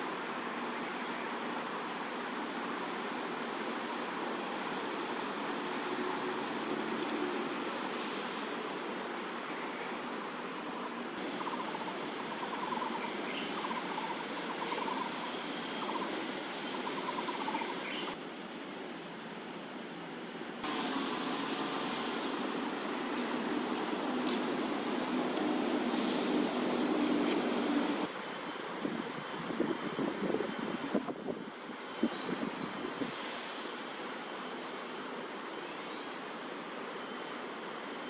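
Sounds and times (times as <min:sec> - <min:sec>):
outdoor background noise: 0:00.0 - 0:38.0.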